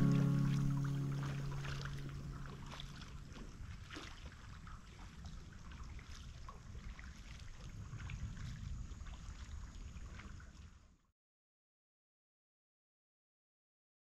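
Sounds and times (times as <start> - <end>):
low steady rumble: 0.0 - 4.0
water lapping and trickling: 0.0 - 11.1.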